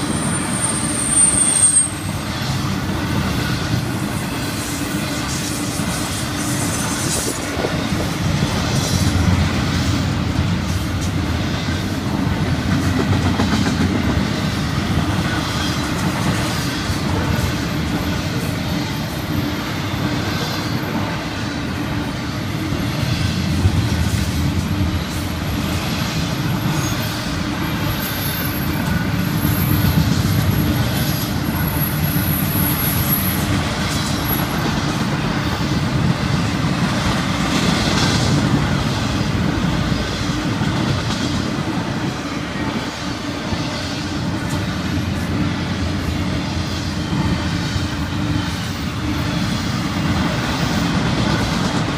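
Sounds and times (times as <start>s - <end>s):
faint wheel squeal: 0.0s - 2.4s
freight train wheels rumbling: 0.0s - 51.9s.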